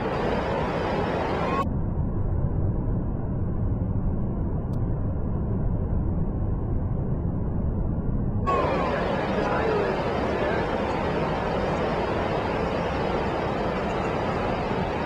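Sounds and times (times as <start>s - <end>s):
heavy surf roaring: 0.0s - 1.6s, 8.5s - 15.0s.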